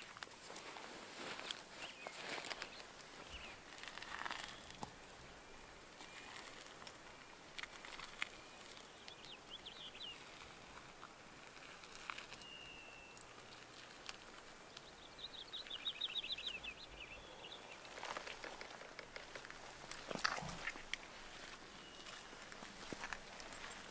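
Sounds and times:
small birds trilling: 0:01.7 - 0:10.6, 0:11.9 - 0:23.9
sharp clicks and rustles: 0:17.9 - 0:21.1.

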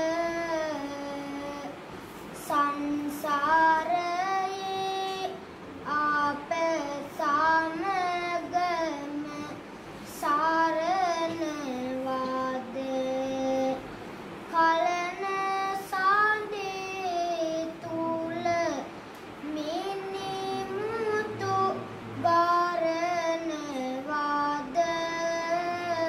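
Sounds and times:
boy monk chanting verse: 0:14.6 - 0:26.0.

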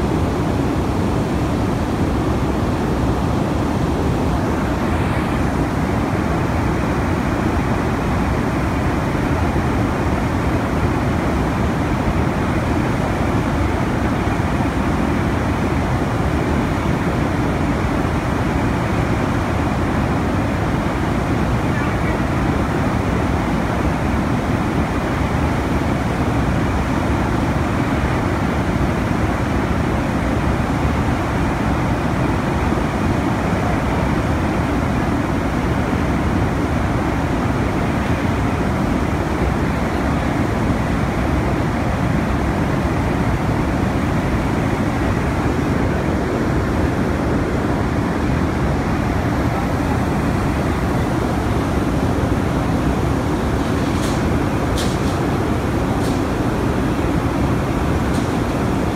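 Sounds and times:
furnace roar: 0:41.2 - 0:58.9.

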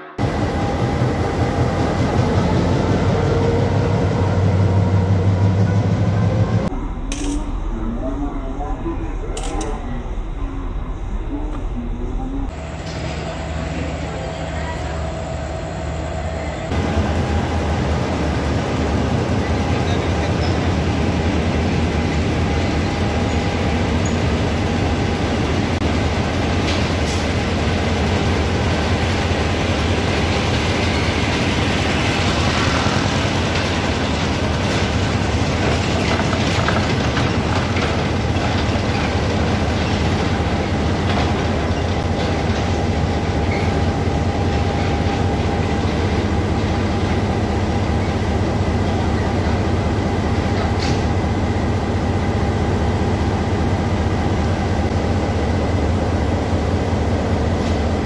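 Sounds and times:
diesel locomotive engine rumble: 0:00.0 - 0:58.0
low hum: 0:05.4 - 0:14.7.

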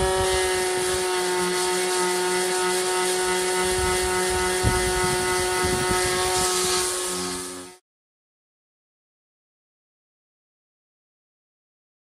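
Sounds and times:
electric sander whining: 0:00.0 - 0:07.8.

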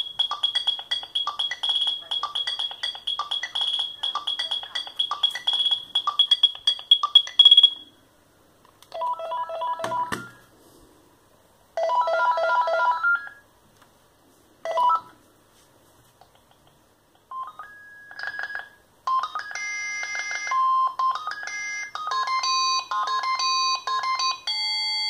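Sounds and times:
mobile phone ringtone beeping: 0:00.0 - 0:08.0, 0:09.0 - 0:10.5, 0:11.8 - 0:13.4, 0:14.6 - 0:15.1, 0:17.3 - 0:25.0
handset knock: 0:09.8 - 0:10.4.

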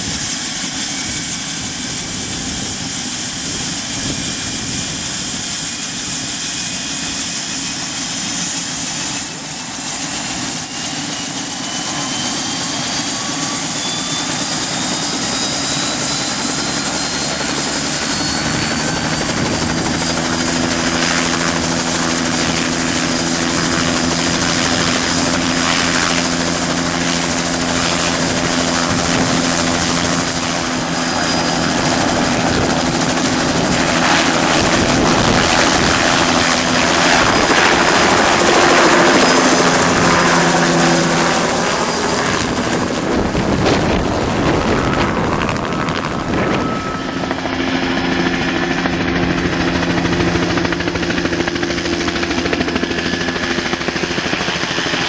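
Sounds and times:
deep rotor drone: 0:00.0 - 0:55.0
helicopter turbine whine: 0:00.0 - 0:55.0.

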